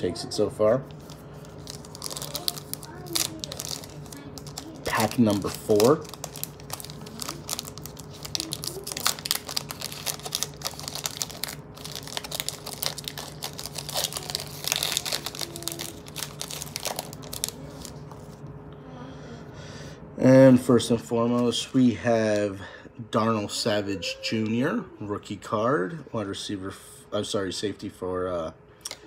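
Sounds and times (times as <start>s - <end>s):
foil wrapper crinkling: 0.9s - 18.4s.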